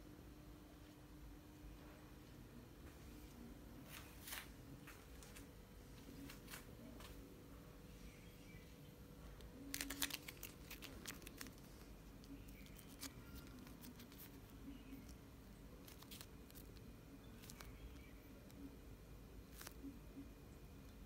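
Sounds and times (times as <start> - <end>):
paper liner crinkling: 9.4 - 18.7, 19.4 - 19.9.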